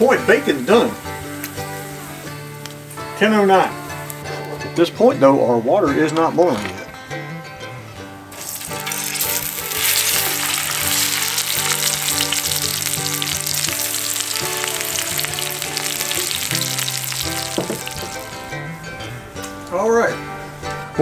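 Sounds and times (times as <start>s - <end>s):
bacon sizzling and popping: 0.0s - 3.1s, 8.3s - 18.5s
background music: 0.0s - 21.0s.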